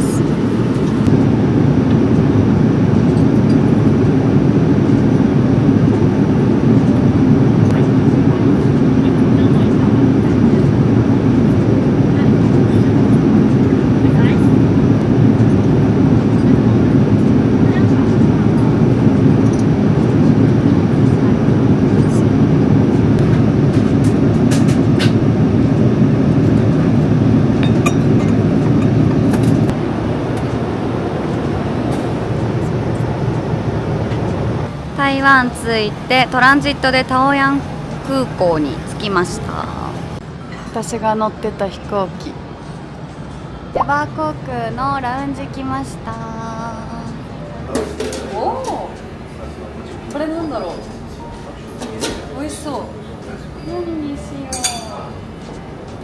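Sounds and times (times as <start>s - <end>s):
jet airliner cabin rumble: 0.0s - 40.3s.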